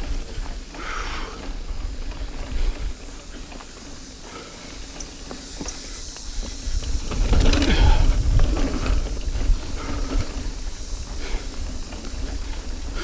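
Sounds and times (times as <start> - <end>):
wind buffeting microphone: 0.0 - 3.4, 6.2 - 13.0
bike chain and parts rattling: 0.0 - 13.0
tyres rumbling on dirt: 0.0 - 13.0.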